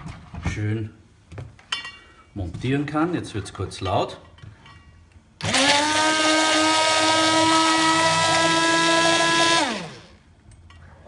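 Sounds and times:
immersion blender motor whining: 5.4s - 10.2s.

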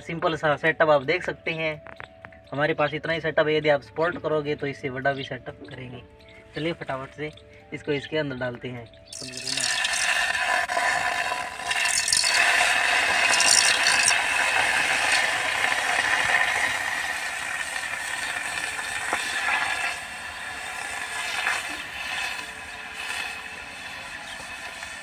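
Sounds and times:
liquid sizzling in hot pan: 9.1s - 25.0s.

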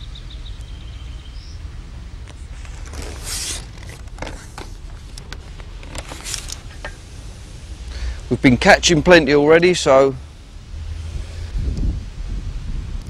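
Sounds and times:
steady low rumble: 0.0s - 13.0s
rustling swish: 2.4s - 7.4s.

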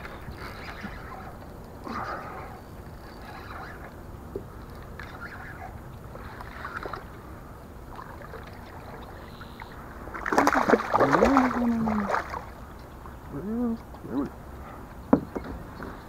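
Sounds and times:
water sloshing: 3.2s - 13.3s
fish splashing at surface: 10.2s - 12.5s.

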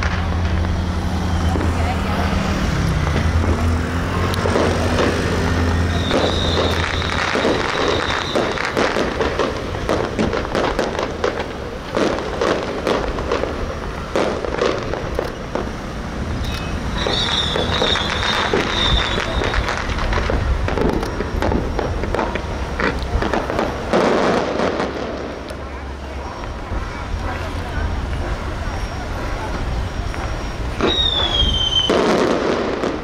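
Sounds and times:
firecrackers cracking: 0.0s - 33.0s
high whistle: 0.8s - 1.8s, 5.8s - 8.8s, 16.4s - 19.9s, 28.6s - 32.1s.

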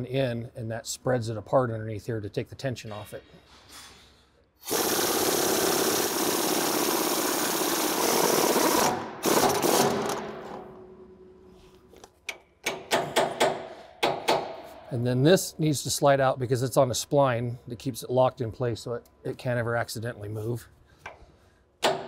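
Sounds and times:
impact wrench hammering on bolt: 12.3s - 14.8s, 21.8s - 22.0s.

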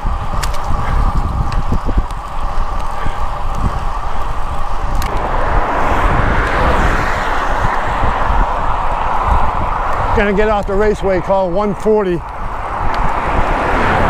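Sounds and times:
passing car traffic: 0.0s - 14.0s
road rumble: 0.0s - 14.0s
wind on microphone: 0.0s - 14.0s
faint clicks: 0.3s - 5.2s.

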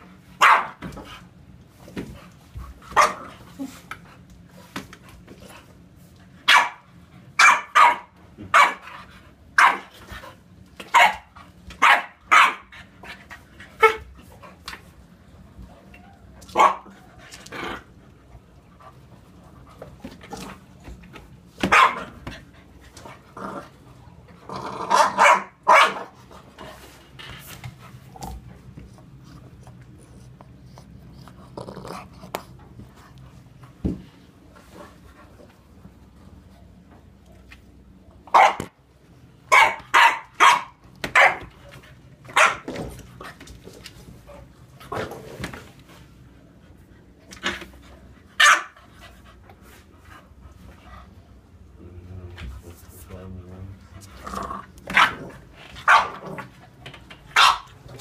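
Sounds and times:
dogs barking: 0.4s - 0.8s, 6.5s - 8.9s, 9.6s - 9.9s, 10.9s - 12.7s, 16.5s - 17.0s, 21.6s - 22.2s, 24.9s - 26.2s, 38.3s - 38.7s, 39.5s - 41.5s, 42.3s - 42.7s, 48.4s - 48.8s, 55.8s - 56.2s, 57.3s - 57.7s.

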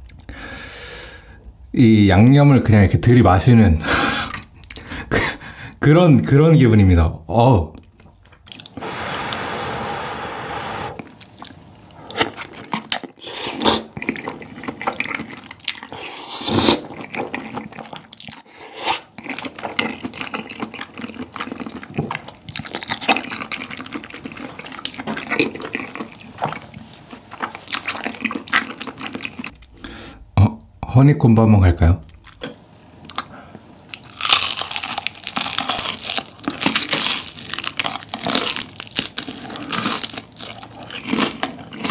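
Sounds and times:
wet slurping of noodles: 8.7s - 11.0s, 15.8s - 16.9s
chewing with wet smacking: 13.8s - 16.0s, 16.9s - 18.5s, 19.1s - 29.8s.

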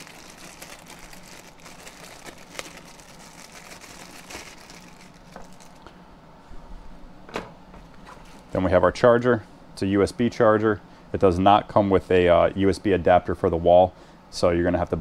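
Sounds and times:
plastic bag crinkling: 0.0s - 5.9s.

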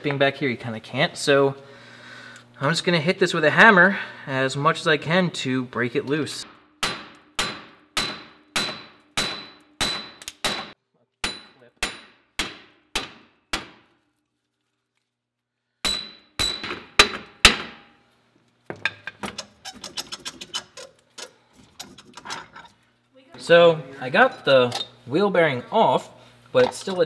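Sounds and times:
hammer striking metal hub: 6.4s - 13.8s, 15.8s - 18.0s.

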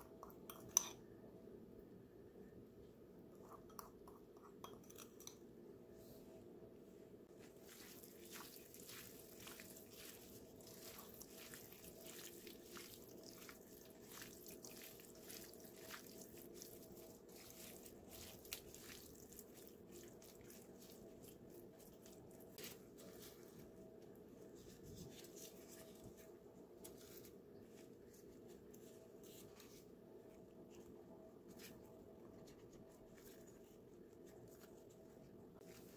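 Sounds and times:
plastic gloves crinkling: 7.3s - 35.9s
chicken squishing in sauce: 7.5s - 23.6s.

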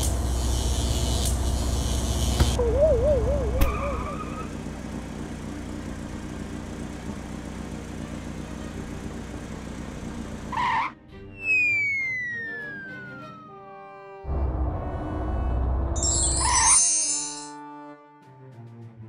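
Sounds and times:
car engine running: 0.0s - 10.9s, 14.3s - 16.6s
cartoon wobbling warble: 2.6s - 4.3s.

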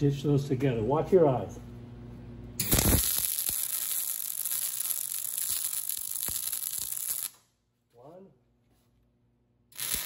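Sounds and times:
welding arc crackling and sizzling: 2.6s - 7.4s, 9.7s - 10.0s.

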